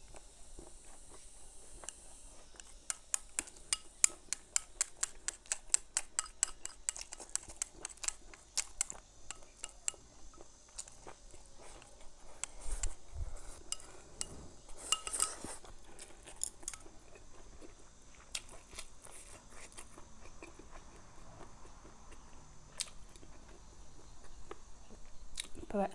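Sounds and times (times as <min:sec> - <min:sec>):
chewing food: 0:00.0 - 0:25.7
chopsticks clicking against porcelain bowl: 0:02.6 - 0:10.0, 0:14.9 - 0:15.5.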